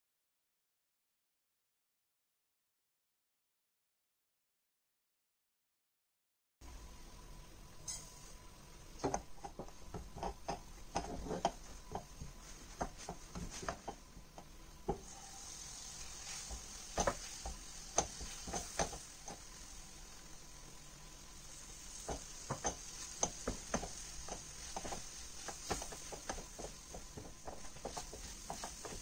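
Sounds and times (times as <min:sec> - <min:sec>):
faint hiss of toasting: 0:06.6 - 0:29.0
spatula knocking against pan: 0:09.0 - 0:12.1, 0:16.5 - 0:19.5, 0:22.0 - 0:29.0
spatula scraping a frying pan: 0:10.9 - 0:11.6, 0:14.9 - 0:20.2, 0:21.4 - 0:29.0.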